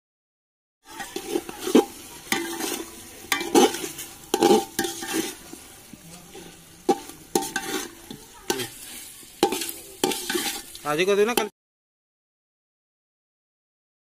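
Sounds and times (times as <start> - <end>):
faint frying sizzle: 0.8 - 11.5
metal ladle scraping a pot: 0.9 - 11.5.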